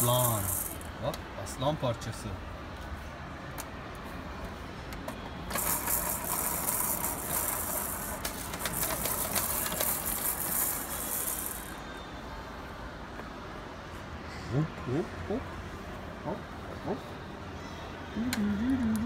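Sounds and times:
plastic baby toy rattling: 0.0s - 0.9s, 5.5s - 11.8s.

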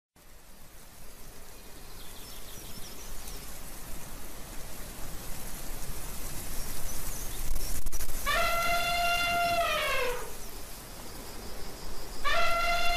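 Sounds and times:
steady rushing hiss: 0.2s - 12.9s
elephant trumpeting: 8.2s - 10.4s, 12.2s - 12.9s.

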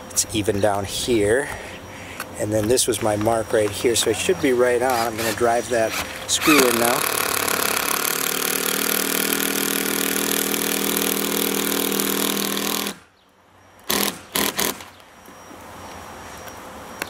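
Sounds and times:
impact driver running: 4.6s - 13.0s, 13.9s - 15.0s
short loud bursts: 4.9s - 13.1s, 13.9s - 14.9s.

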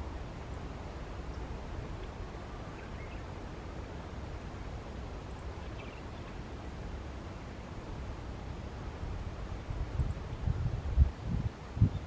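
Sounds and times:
wind rumble on microphone: 0.0s - 12.0s
faint distant bird chirps: 0.4s - 7.8s.

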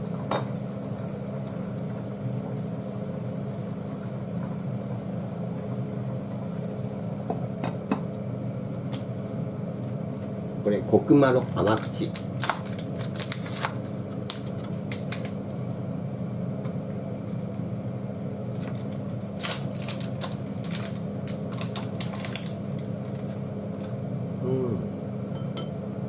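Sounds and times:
steady low hum: 0.0s - 26.0s
plastic packaging crackling: 11.4s - 15.4s, 18.6s - 23.4s.

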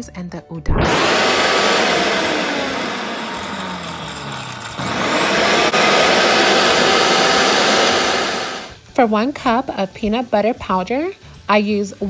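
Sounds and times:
blender grinding: 0.7s - 8.8s.

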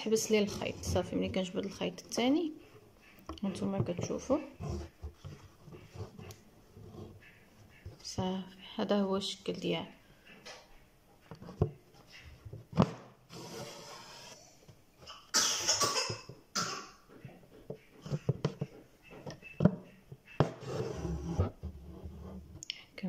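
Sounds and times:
person coughing: 15.2s - 17.0s.

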